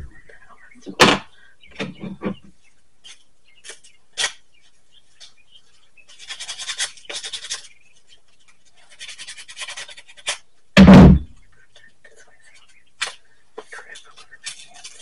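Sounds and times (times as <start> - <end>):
scratchy sanding strokes: 6.1 - 10.3
loud thud: 10.8 - 11.4.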